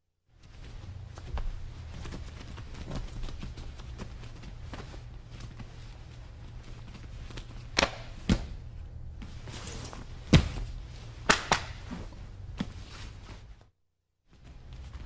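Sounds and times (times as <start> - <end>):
steady low hum: 0.3 - 15.0
slaps and thuds on mat: 7.3 - 8.6, 10.2 - 12.8.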